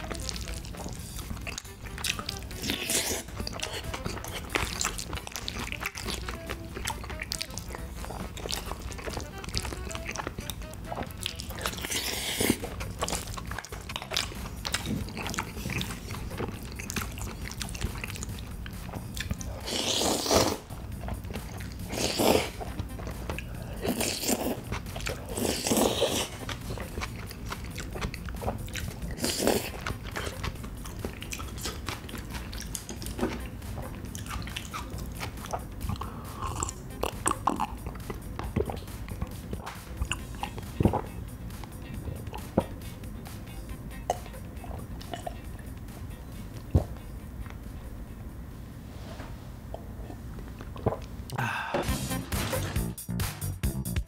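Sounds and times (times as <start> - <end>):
slurping noodles: 0.0 - 41.2
wet chewing: 0.0 - 47.8, 49.7 - 51.4.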